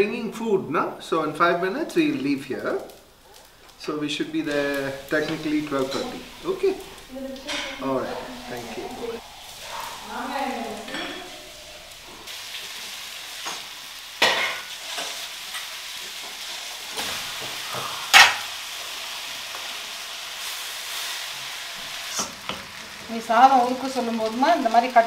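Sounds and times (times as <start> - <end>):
rice sizzling in pan: 0.0 - 25.0
utensils knocking against pans: 5.2 - 12.3, 13.4 - 15.7, 16.9 - 18.5.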